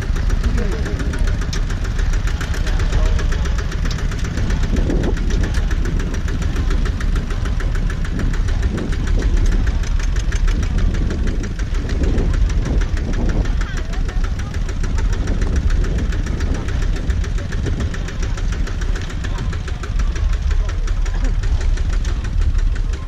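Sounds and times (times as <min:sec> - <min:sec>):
diesel tractor engine chugging: 0:00.0 - 0:23.0.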